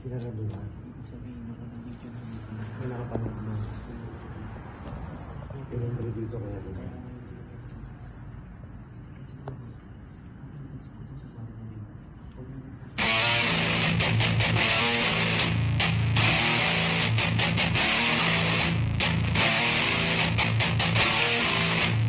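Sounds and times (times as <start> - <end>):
crickets chirping: 0.0 - 22.0
loud guitar music: 13.0 - 22.0.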